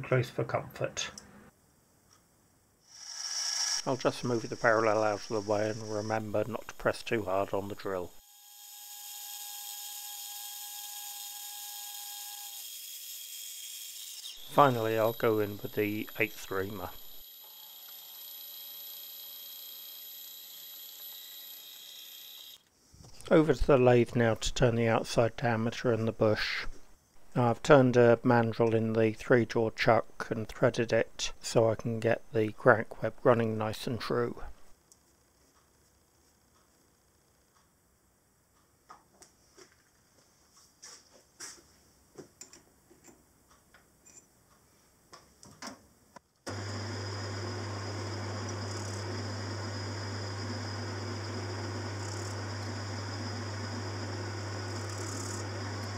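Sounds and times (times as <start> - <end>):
milling machine whining: 3.8 - 9.4, 14.2 - 22.6, 46.5 - 55.9.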